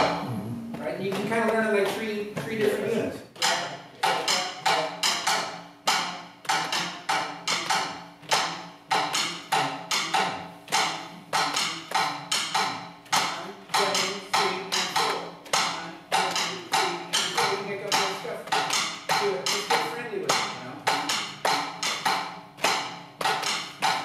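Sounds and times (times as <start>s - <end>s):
drum kit hits: 0.0s - 2.0s.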